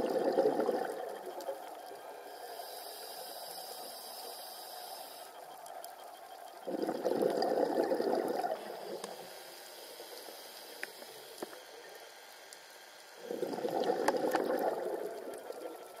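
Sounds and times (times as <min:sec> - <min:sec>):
underwater background: 0:00.0 - 0:16.0
faint clicks: 0:00.8 - 0:02.5, 0:05.4 - 0:06.7, 0:09.0 - 0:13.1
regulator exhaust bubbles: 0:13.3 - 0:15.9.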